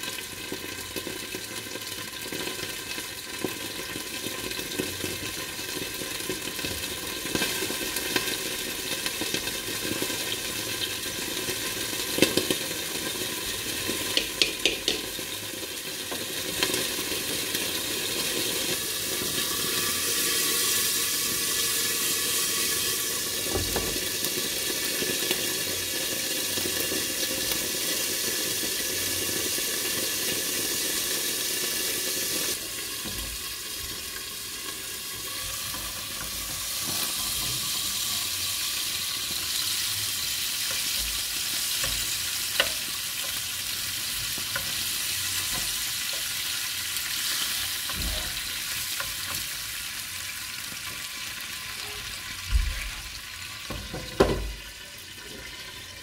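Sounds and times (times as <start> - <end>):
food sizzling in a frying pan: 0.0 - 56.0
utensil clicking against pan: 14.1 - 15.1, 41.7 - 43.4.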